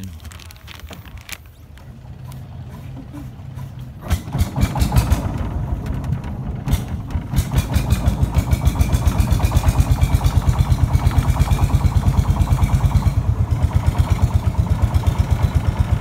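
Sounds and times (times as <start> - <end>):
boat engine chugging: 1.2 - 16.0.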